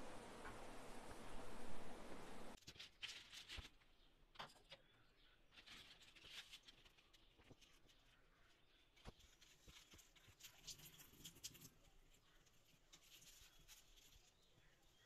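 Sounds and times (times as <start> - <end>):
faint steady hiss: 0.0 - 2.6.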